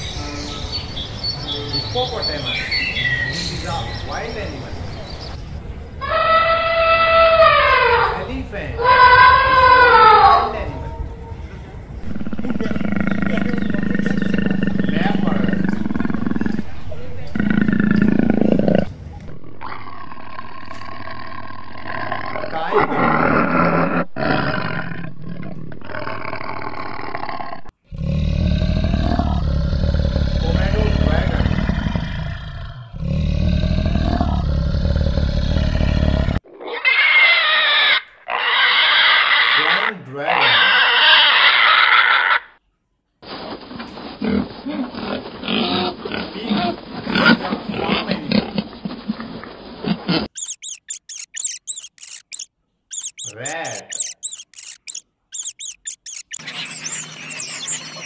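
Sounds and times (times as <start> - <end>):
piglets grunting and oinking: 12.0 - 18.9, 36.6 - 42.4, 50.1 - 58.0
tiger roaring: 12.0 - 36.4
rodent squeaking rapidly: 50.3 - 58.0.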